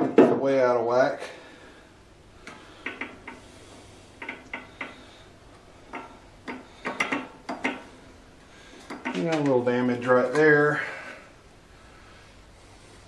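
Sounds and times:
metal cover clicks and knocks: 5.9s - 7.9s.

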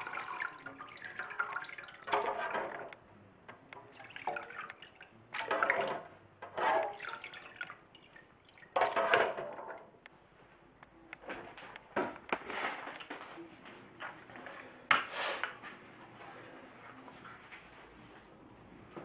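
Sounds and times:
liquid splashing and dripping: 0.0s - 2.9s, 3.7s - 6.0s, 6.8s - 9.4s.

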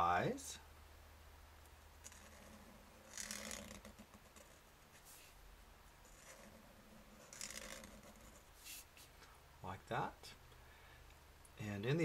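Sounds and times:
marker strokes on paper: 2.0s - 5.4s, 6.0s - 9.2s.

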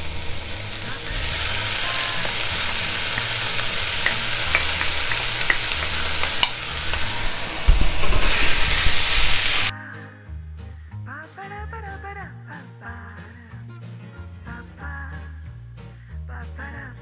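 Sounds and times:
food sizzling in frying pan: 0.0s - 9.7s
wooden spoon stirring in pan: 1.1s - 9.7s.

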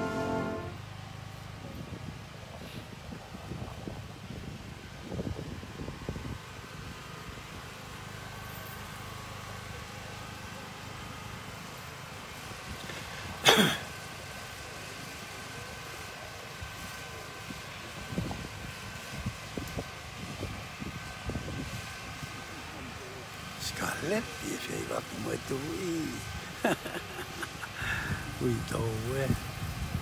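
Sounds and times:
wind rumble on microphone: 1.6s - 7.6s, 17.5s - 22.4s, 28.0s - 30.0s
person coughing: 13.4s - 13.8s.

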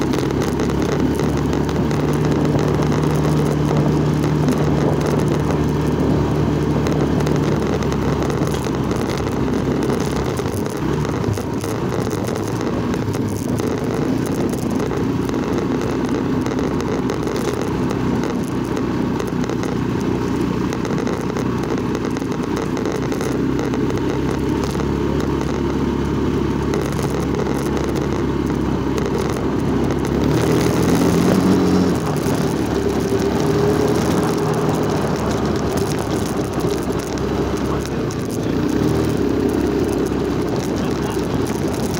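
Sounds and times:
wind noise: 0.0s - 16.1s
small motorcycle engine running: 0.0s - 41.9s.

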